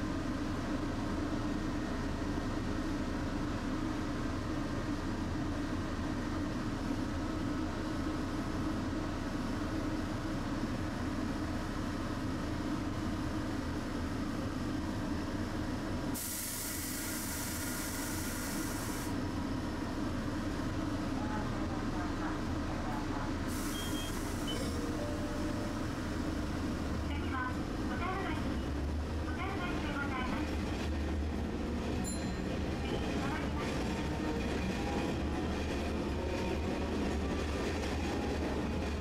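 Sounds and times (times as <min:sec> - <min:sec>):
streetcar rumbling: 0:00.0 - 0:39.0
air hissing: 0:16.2 - 0:19.1.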